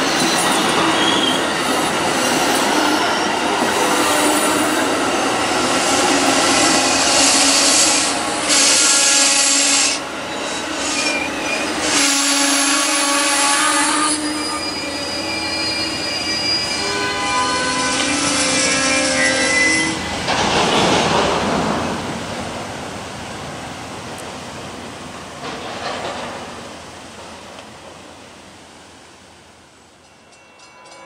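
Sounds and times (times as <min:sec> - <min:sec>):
train wheels squealing: 0:00.0 - 0:20.2, 0:30.0 - 0:31.0
burst of hiss: 0:05.7 - 0:10.0.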